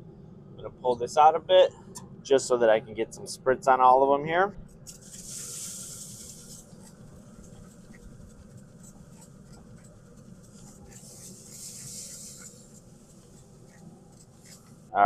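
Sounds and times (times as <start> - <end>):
spray bottle hissing: 4.8 - 14.8.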